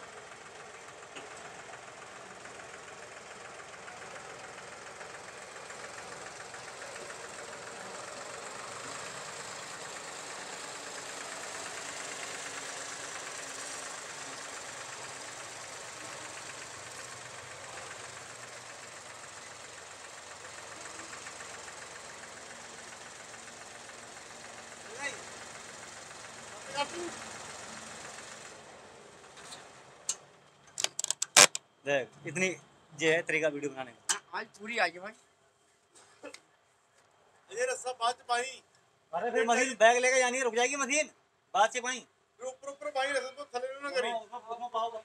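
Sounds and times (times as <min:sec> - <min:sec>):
diesel tractor engine clattering: 0:00.1 - 0:31.6.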